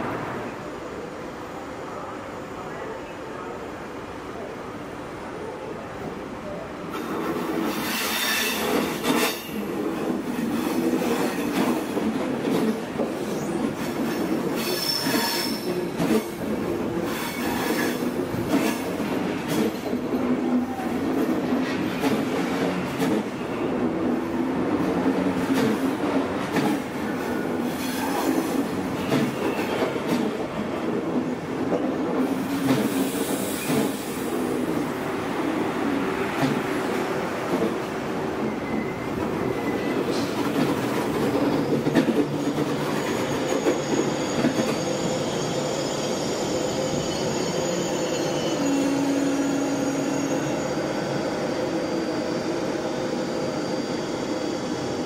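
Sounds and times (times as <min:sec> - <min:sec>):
train wheels rumbling on rails: 0:06.8 - 0:55.0
high wheel squeals: 0:14.6 - 0:15.8, 0:42.4 - 0:55.0.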